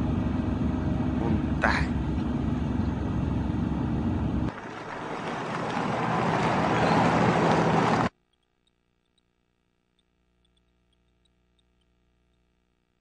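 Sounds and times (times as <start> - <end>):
car approaching on dirt road: 0.0 - 8.1
car engine inside cabin: 0.0 - 8.1.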